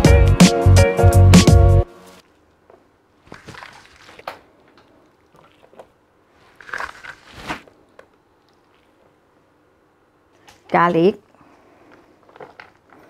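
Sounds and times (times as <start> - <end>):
plastic tub rustling: 3.2 - 4.4, 5.5 - 7.7
wet squishes of meat: 3.2 - 7.7.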